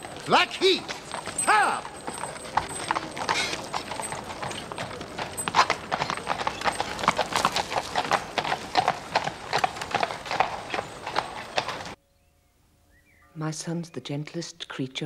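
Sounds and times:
horse hooves clip-clopping on street: 0:00.0 - 0:12.0.

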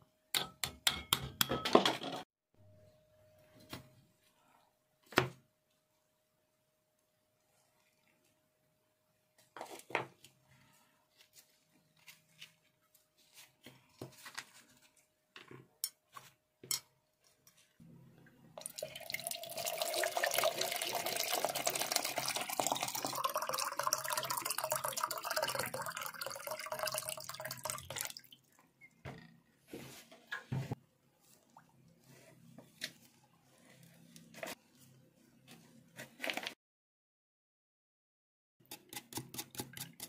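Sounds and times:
water pouring into plastic tub: 0:18.6 - 0:28.4.

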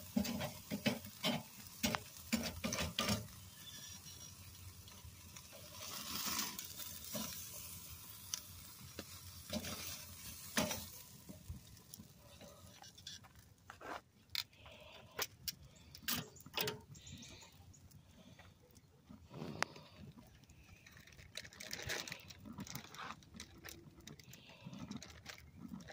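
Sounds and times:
steaks sizzling on grill: 0:00.0 - 0:13.2.

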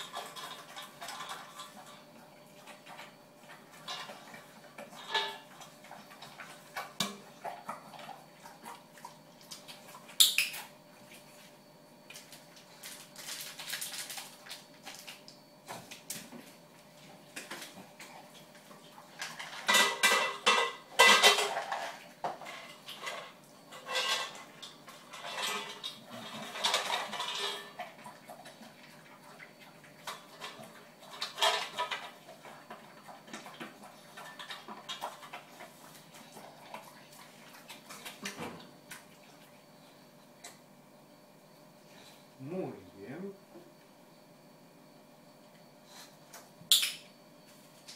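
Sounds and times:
metal dog bowl clattering: 0:03.8 - 0:05.6.

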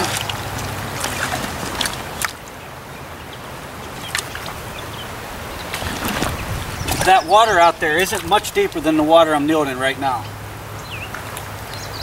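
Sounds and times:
fish splashing at surface: 0:00.0 - 0:02.4, 0:05.7 - 0:07.2
shallow stream rushing: 0:00.0 - 0:12.0.

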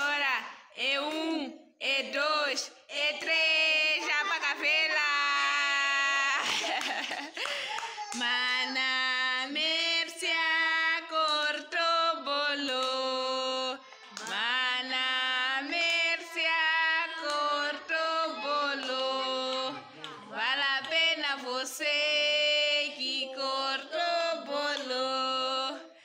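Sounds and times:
woman singing slow melody: 0:08.1 - 0:26.0.

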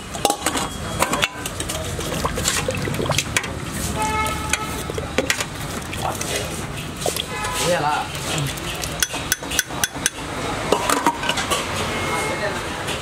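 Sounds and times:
ladle and lid clinking on pots: 0:00.0 - 0:06.5, 0:08.1 - 0:11.7
liquid sloshing and pouring: 0:00.0 - 0:09.9
ladle stirring gravy in a pot: 0:01.1 - 0:10.2.

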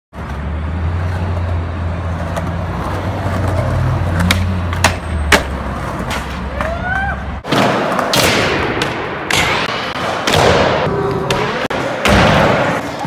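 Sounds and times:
street traffic rumble: 0:00.1 - 0:07.4
skateboard wheels rolling on pavement: 0:00.1 - 0:08.2.

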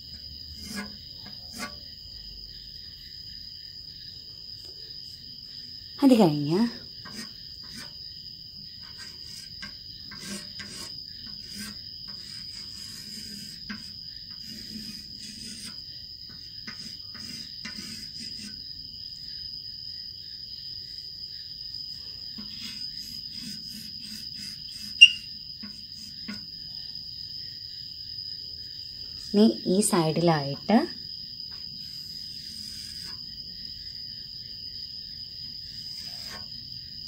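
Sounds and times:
cricket trill: 0:00.0 - 0:37.0
chalk scratching on blackboard: 0:00.6 - 0:01.9, 0:07.0 - 0:08.0, 0:08.8 - 0:18.6, 0:22.4 - 0:26.4, 0:31.8 - 0:33.2, 0:35.8 - 0:36.5.

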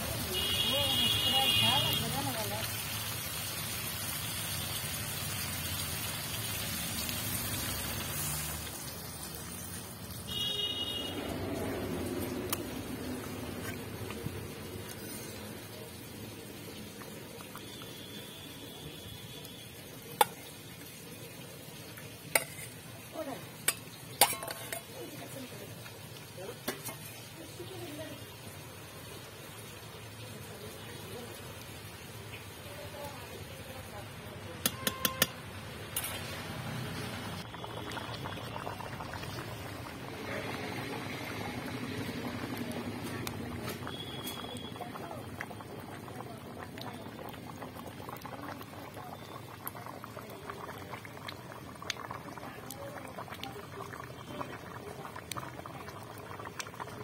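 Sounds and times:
curry sizzling in a pan: 0:00.0 - 0:57.0
spatula stirring: 0:22.2 - 0:22.9, 0:23.6 - 0:25.0
spatula clinking on steel bowl: 0:23.7 - 0:24.9
spatula clicking against pan: 0:34.6 - 0:35.4.

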